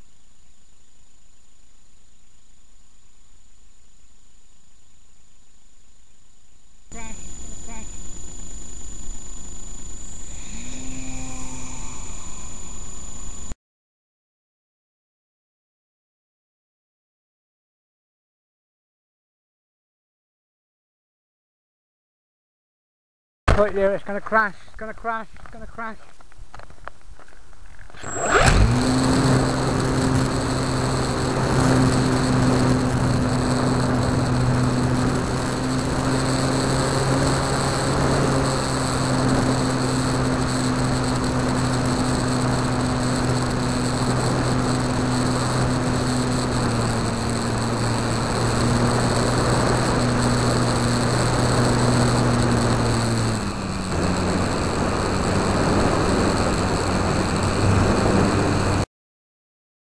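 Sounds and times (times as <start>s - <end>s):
constant hiss: 0.0s - 13.6s, 23.6s - 28.0s
electric motor and propeller whine: 6.8s - 13.6s, 27.9s - 58.9s.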